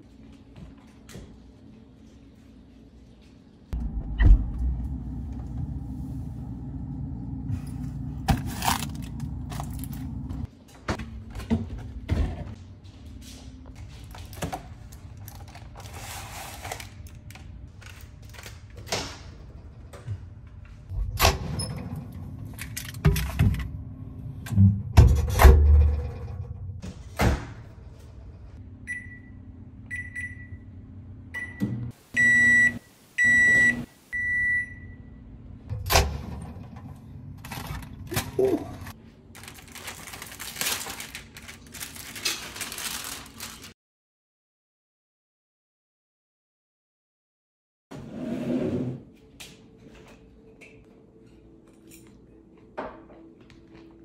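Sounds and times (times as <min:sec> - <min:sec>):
microwave oven humming: 0:03.8 - 0:12.0, 0:28.1 - 0:39.0.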